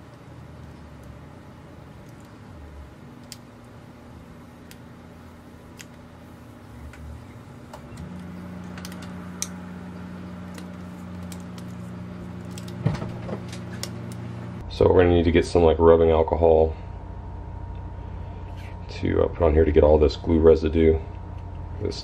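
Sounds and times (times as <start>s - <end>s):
film peeling clicks and crackles: 2.0s - 2.5s, 3.2s - 3.7s, 5.7s - 6.0s, 7.7s - 9.6s, 10.3s - 14.2s.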